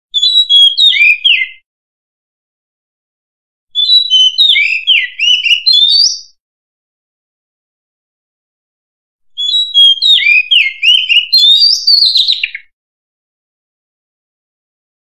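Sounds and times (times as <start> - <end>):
bird singing whistled notes: 0.1 - 1.6, 3.8 - 6.4, 9.3 - 12.8.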